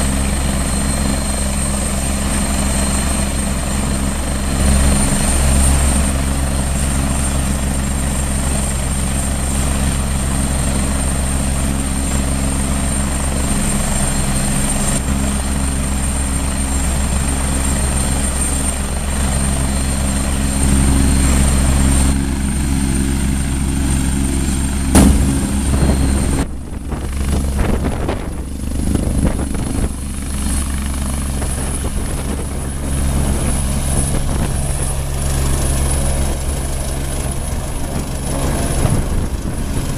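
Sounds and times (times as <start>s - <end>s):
helicopter turbine whine and rotor: 0.0s - 39.9s
sharp click: 25.0s - 25.9s.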